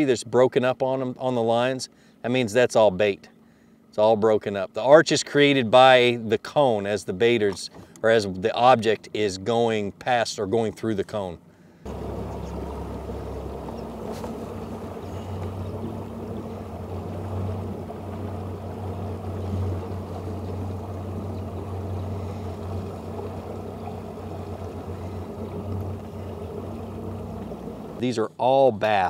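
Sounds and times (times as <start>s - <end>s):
outboard motor humming: 1.0s - 29.0s
water against boat hull: 7.2s - 9.8s, 11.9s - 28.0s.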